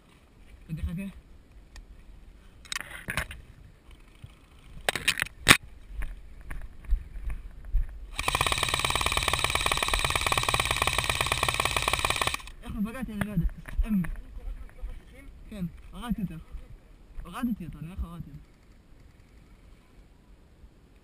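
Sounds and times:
airsoft rifle full-auto burst: 0:08.1 - 0:12.6.

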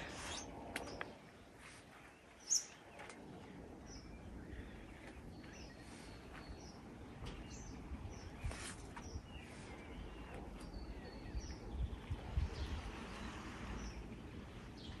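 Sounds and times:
high bird chirps: 0:02.4 - 0:02.8.

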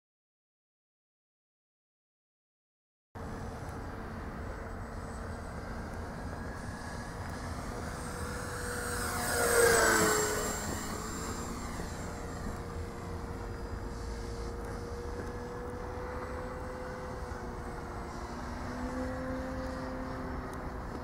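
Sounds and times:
model plane motor whining: 0:04.4 - 0:21.0.

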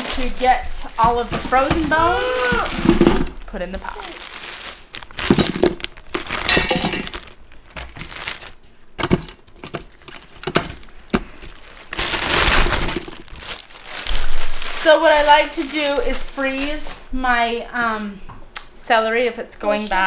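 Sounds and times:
plastic bags rustling: 0:00.0 - 0:18.2, 0:19.6 - 0:20.0
bones clattering into metal pot: 0:05.1 - 0:08.4.

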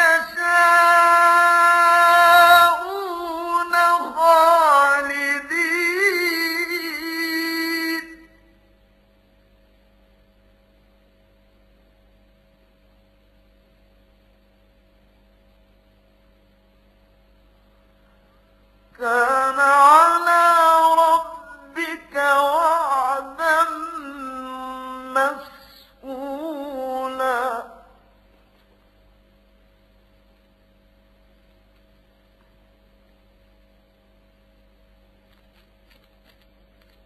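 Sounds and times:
man chanting melodically: 0:00.0 - 0:08.4, 0:19.0 - 0:28.0
electrical hum: 0:00.0 - 0:37.0.

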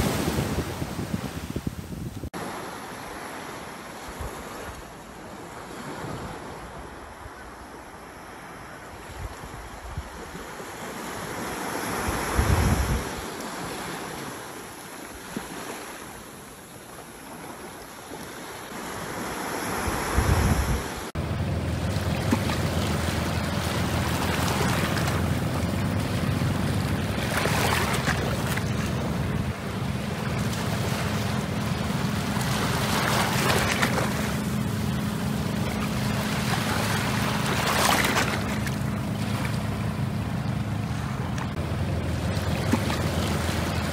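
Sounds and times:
wind gusting on microphone: 0:00.0 - 0:02.3, 0:11.9 - 0:13.2, 0:19.8 - 0:43.9
sea waves washing onto beach: 0:00.0 - 0:07.1, 0:08.0 - 0:43.9
steady low rumble: 0:21.2 - 0:43.9.

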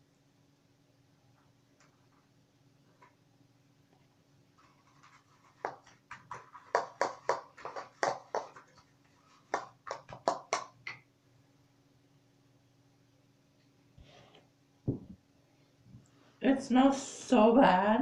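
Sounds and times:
faint steady hum: 0:00.0 - 0:18.0
sharp taps and clacks: 0:05.0 - 0:08.8, 0:09.5 - 0:11.0.

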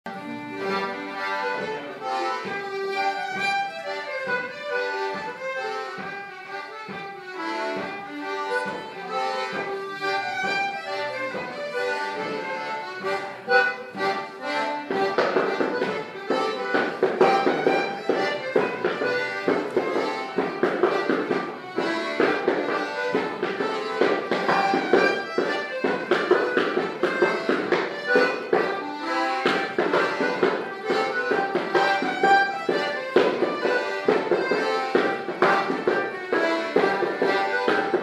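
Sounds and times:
accordion folk dance tune: 0:00.1 - 0:38.0
clogs tapping on wooden floor: 0:14.9 - 0:38.0.

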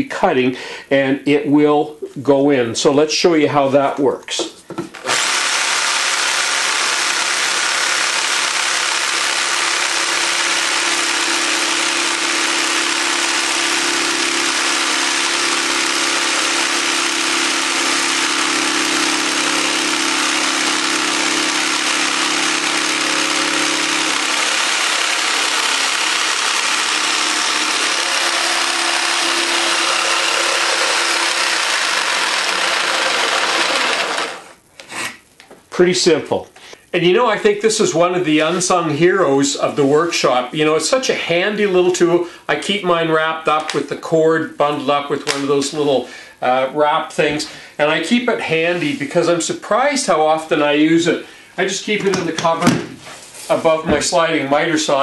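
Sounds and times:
jigsaw cutting wood: 0:04.9 - 0:34.6.

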